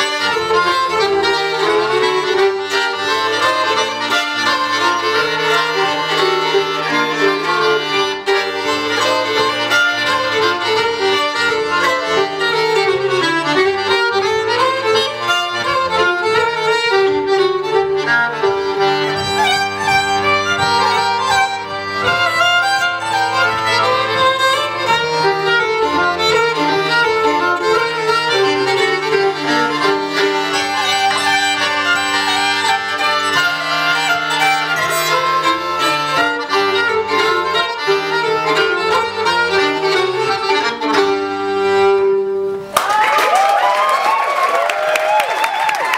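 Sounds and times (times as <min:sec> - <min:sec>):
button accordion: 0:00.0 - 0:42.7
fiddle: 0:00.0 - 0:42.7
audience applause: 0:42.7 - 0:45.9.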